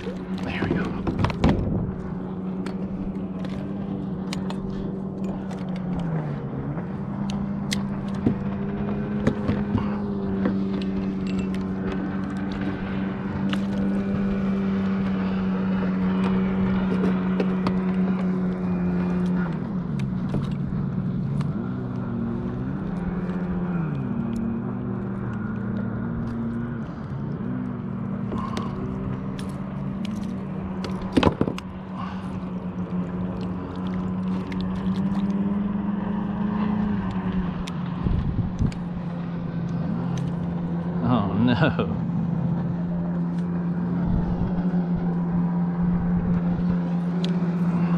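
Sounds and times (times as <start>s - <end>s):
fishing gear clicking and knocking: 0.0s - 6.2s, 7.2s - 12.8s, 16.0s - 20.7s, 28.2s - 35.6s
motorboat engine running: 0.0s - 47.9s.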